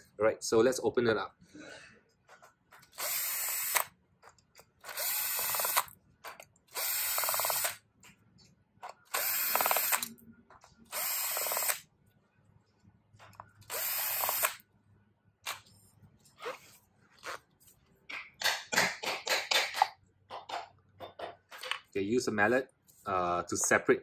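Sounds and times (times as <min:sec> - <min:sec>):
cordless drill running: 0:02.9 - 0:03.9, 0:04.8 - 0:05.9, 0:06.7 - 0:07.8, 0:09.1 - 0:10.1, 0:10.9 - 0:11.8, 0:13.7 - 0:14.6.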